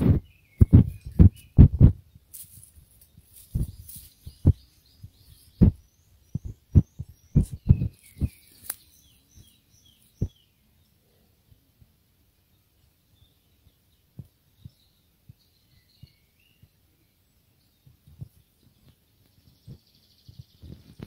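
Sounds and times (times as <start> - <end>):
small bird chirping: 0.0 - 11.0, 12.5 - 21.0
footsteps on forest floor: 2.3 - 4.7, 7.4 - 9.6.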